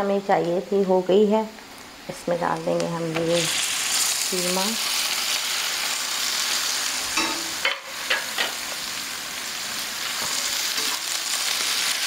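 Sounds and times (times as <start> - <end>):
meat sizzling in hot oil: 2.4 - 12.0.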